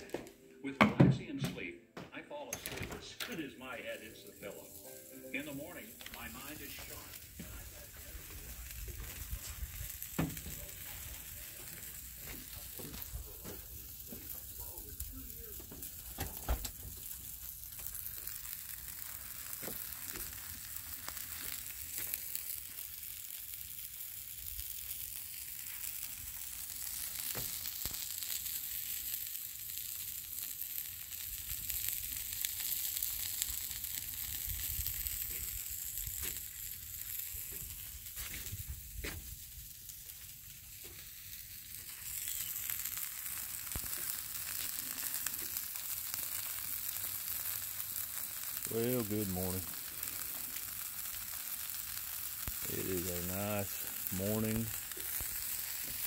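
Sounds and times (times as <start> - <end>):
potatoes sizzling on a griddle: 3.7 - 56.0.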